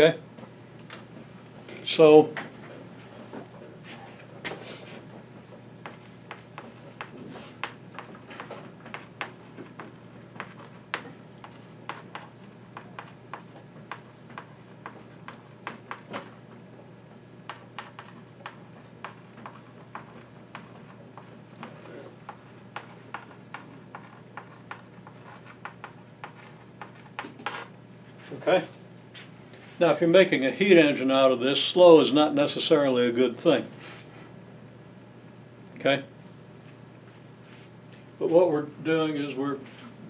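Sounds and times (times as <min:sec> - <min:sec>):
chalk writing on blackboard: 0:05.8 - 0:16.0, 0:17.5 - 0:27.7.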